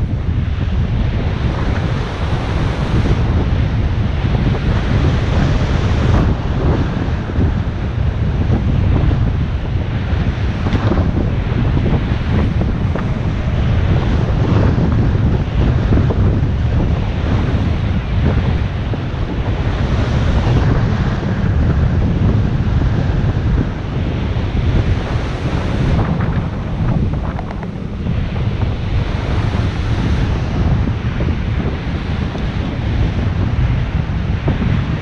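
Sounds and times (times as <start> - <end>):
surf washing onto beach: 0.0 - 35.0
wind buffeting microphone: 0.0 - 35.0.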